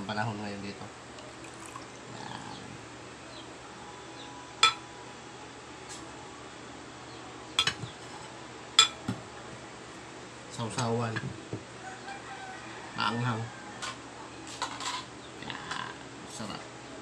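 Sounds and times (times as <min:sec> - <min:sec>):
metal spoon clinking on ceramic bowls: 0:07.6 - 0:07.9.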